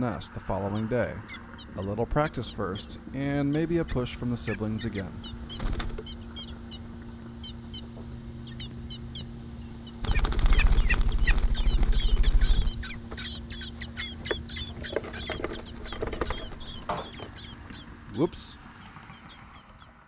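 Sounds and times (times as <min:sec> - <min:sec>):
low steady hum: 0:00.0 - 0:18.8
nestlings cheeping: 0:00.3 - 0:19.9
wings flapping: 0:05.4 - 0:06.2, 0:09.9 - 0:17.9.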